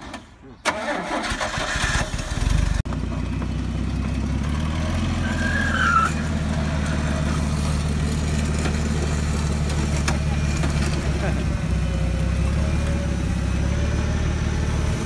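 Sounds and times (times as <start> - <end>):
forklift engine running: 0.6 - 15.0
short squeal: 5.2 - 6.2.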